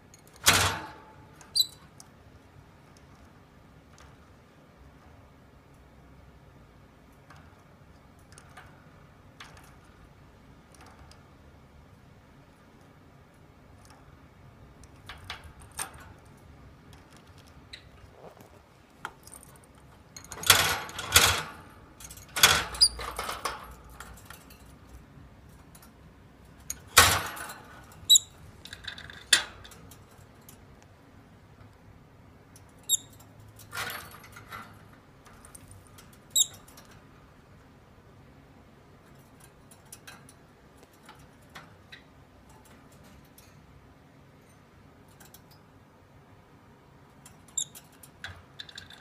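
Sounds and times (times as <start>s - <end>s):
wire birdcage rattling: 0.2s - 2.0s, 7.1s - 11.3s, 14.8s - 18.5s, 19.1s - 30.8s, 32.5s - 37.2s, 39.0s - 43.8s, 47.1s - 49.0s.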